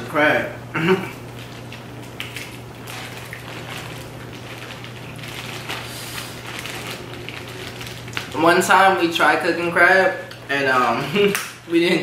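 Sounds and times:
plastic bag crinkling: 1.2 - 10.3
crab shells cracking: 1.3 - 8.4.

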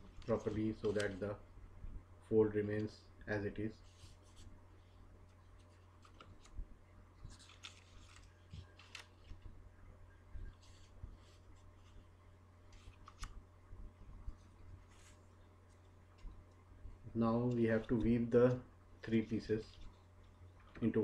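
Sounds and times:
paper rustling and creasing: 0.1 - 1.3, 5.5 - 6.6, 7.2 - 9.5, 10.5 - 12.1, 12.7 - 13.4.

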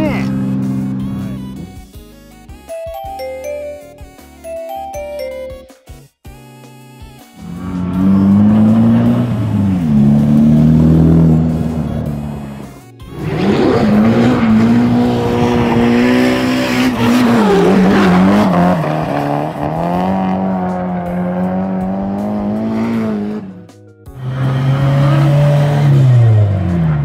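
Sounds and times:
high-revving car engine: 0.0 - 1.8, 7.4 - 23.6, 24.2 - 27.0.

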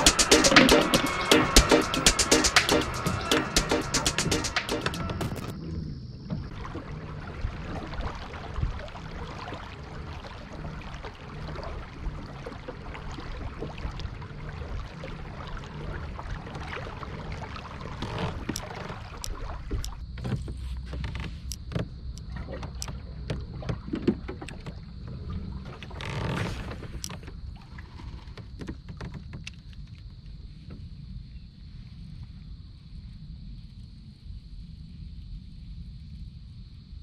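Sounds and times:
water lapping around kayak: 5.0 - 32.4.

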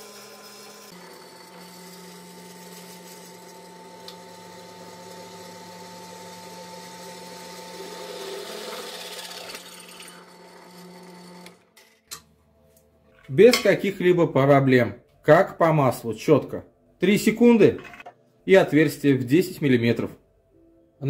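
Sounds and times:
drill press motor hum: 0.0 - 11.7.

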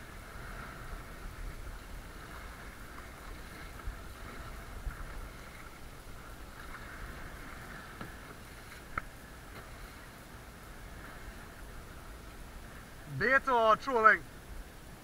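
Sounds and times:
wind buffeting microphone: 0.0 - 9.9
water lapping against kayak hull: 0.0 - 15.0.

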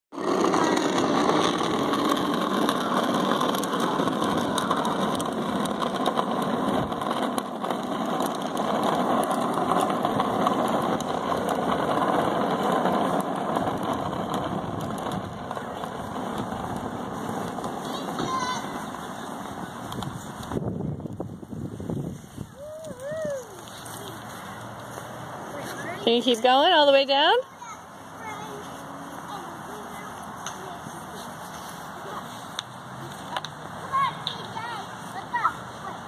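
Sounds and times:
small wheels rolling on asphalt: 0.1 - 36.0.

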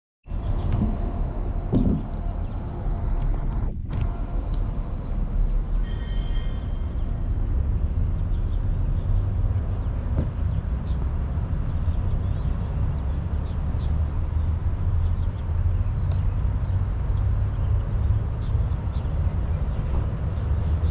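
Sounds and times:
low rumble: 0.3 - 5.8.

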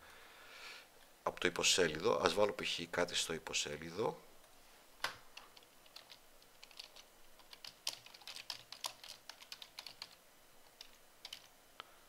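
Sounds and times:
typing on computer keyboard: 5.4 - 10.2, 10.8 - 11.5.

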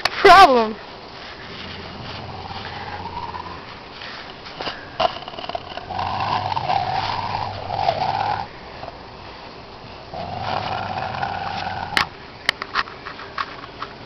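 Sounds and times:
dog growling: 1.5 - 3.8, 4.7 - 9.0, 10.1 - 12.1.

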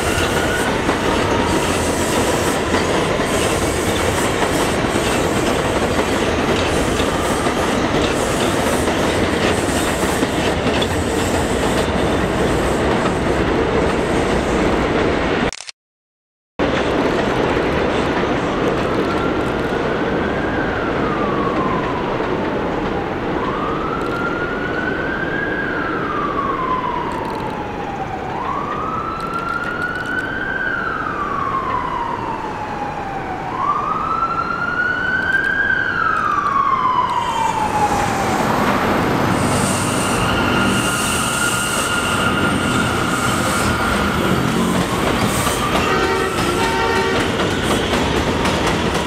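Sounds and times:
emergency vehicle wail siren: 0.0 - 3.4, 18.4 - 49.0
subway train running: 0.0 - 15.5, 16.6 - 49.0.

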